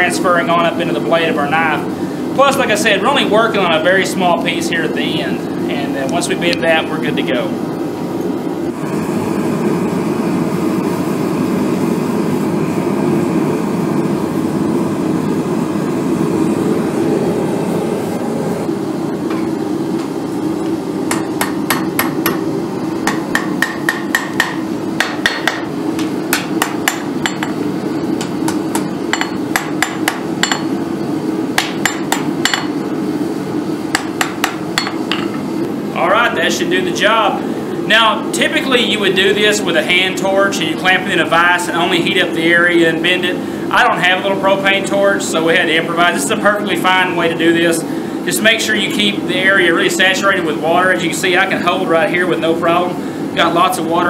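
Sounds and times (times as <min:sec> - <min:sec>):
hammer striking metal on anvil: 0:21.1 - 0:27.6, 0:28.2 - 0:30.7, 0:31.6 - 0:32.8, 0:33.9 - 0:35.4.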